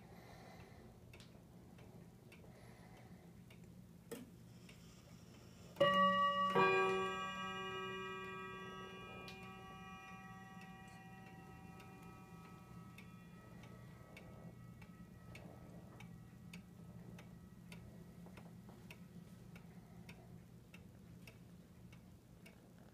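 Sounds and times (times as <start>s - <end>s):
low steady hum: 0.0s - 22.9s
wall clock ticking: 0.0s - 22.9s
clock chime ringing: 5.8s - 18.7s.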